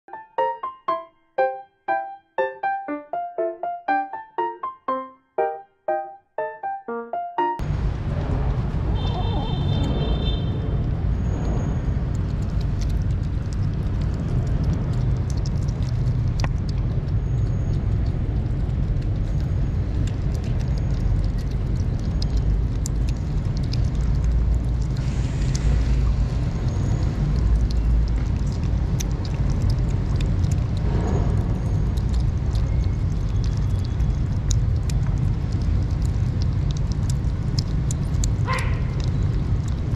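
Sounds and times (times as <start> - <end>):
steady low rumble: 10.8 - 38.4
kittens chewing wet food: 10.8 - 39.9.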